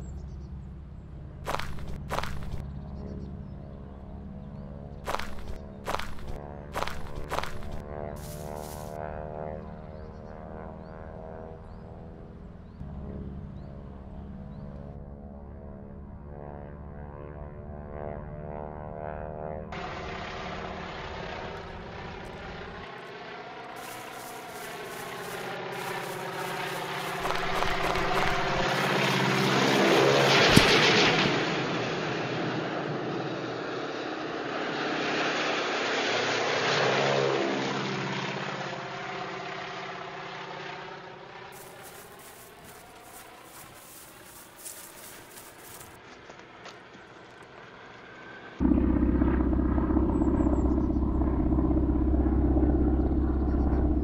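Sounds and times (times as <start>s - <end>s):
propeller plane flying past: 0.0s - 54.0s
sharp crack: 30.4s - 31.0s.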